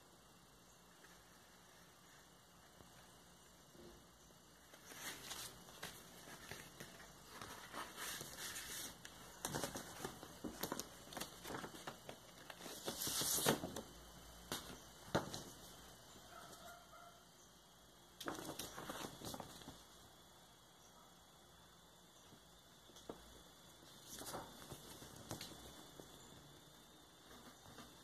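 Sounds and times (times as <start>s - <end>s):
paper and cardboard rustling: 4.7s - 13.9s, 23.9s - 26.0s.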